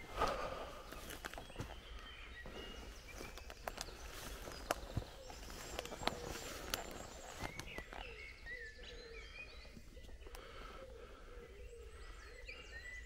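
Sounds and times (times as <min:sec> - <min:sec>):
footsteps snapping twigs: 0:00.0 - 0:08.3
songbirds chirping and trilling: 0:00.0 - 0:13.0.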